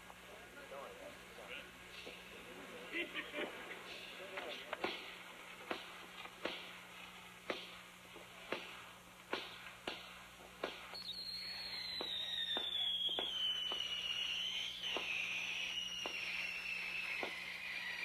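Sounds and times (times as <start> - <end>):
fireworks popping and cracking: 4.2 - 18.0
whistling firework: 8.4 - 18.0.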